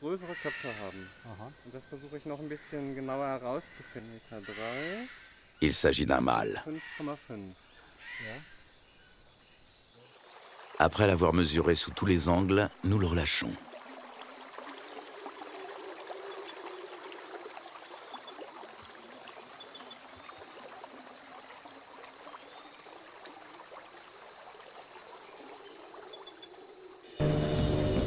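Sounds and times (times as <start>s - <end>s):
insect chirping: 0.0s - 27.3s
water lapping and trickling: 6.6s - 27.2s.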